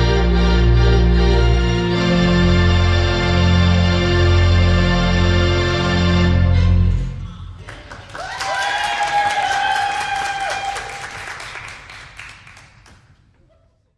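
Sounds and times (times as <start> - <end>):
crowd clapping: 7.6 - 13.3
crowd cheering: 8.0 - 12.5.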